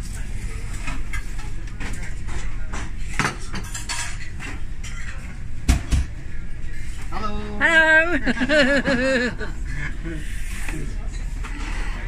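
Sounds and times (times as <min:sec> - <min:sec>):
clinks of plates and utensils: 0:00.8 - 0:05.4.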